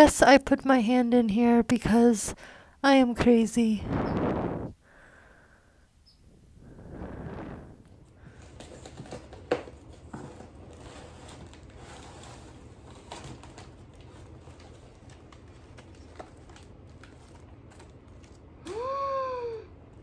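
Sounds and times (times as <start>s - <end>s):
paper rustling and crinkling: 8.3s - 18.5s.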